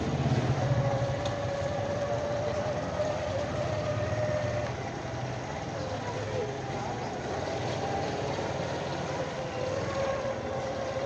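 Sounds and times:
motorcycle engine low drone: 0:00.0 - 0:11.0.

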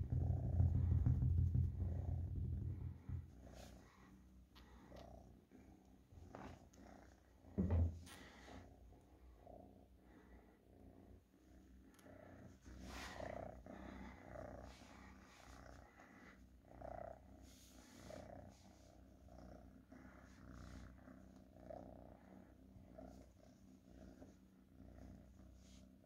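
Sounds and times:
cat purring: 0:00.0 - 0:26.0.

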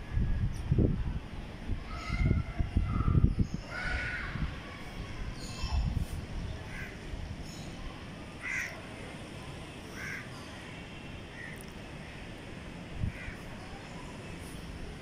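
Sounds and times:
steady outdoor hum: 0:00.0 - 0:15.0
crows cawing: 0:08.4 - 0:08.8, 0:09.9 - 0:10.3, 0:13.1 - 0:13.4.

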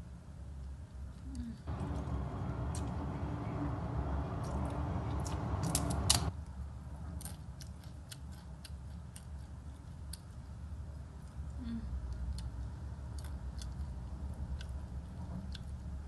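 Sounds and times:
crackers crunching when chewed: 0:07.2 - 0:10.4, 0:12.1 - 0:16.0.

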